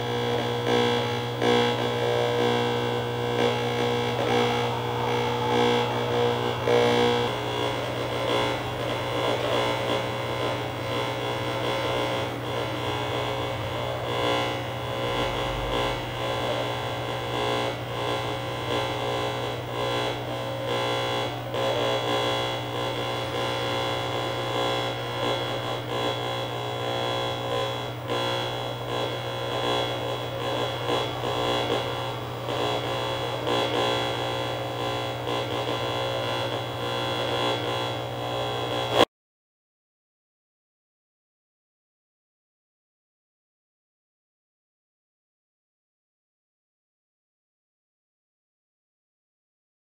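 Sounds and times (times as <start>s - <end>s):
buzzing electronic tones and hiss: 0.0s - 39.0s
constant low hum: 0.0s - 39.0s.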